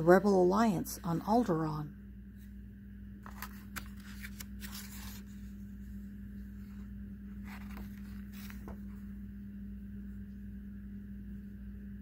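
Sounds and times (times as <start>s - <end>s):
steady low hum: 0.0s - 12.0s
paper pages rustling: 3.2s - 9.1s.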